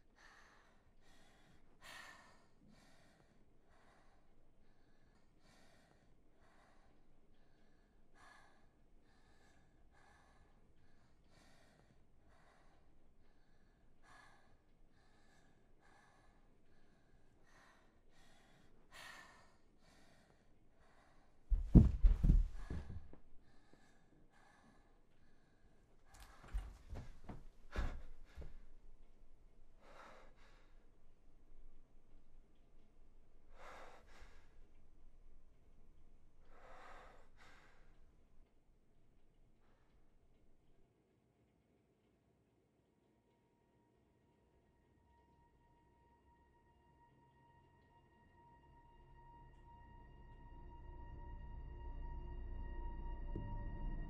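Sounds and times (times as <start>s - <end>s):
person breathing heavily: 0.0s - 29.0s, 29.7s - 31.0s, 33.5s - 34.8s, 36.4s - 38.2s.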